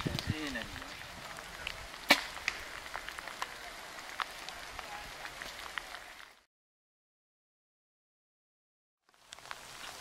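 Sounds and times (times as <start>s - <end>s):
rain hissing in woodland: 0.0s - 6.5s, 9.0s - 10.0s
single raindrops ticking: 9.0s - 10.0s.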